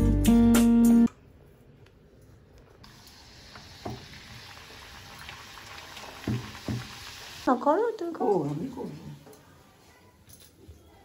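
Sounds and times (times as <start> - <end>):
hot oil sizzling: 2.9 - 9.2.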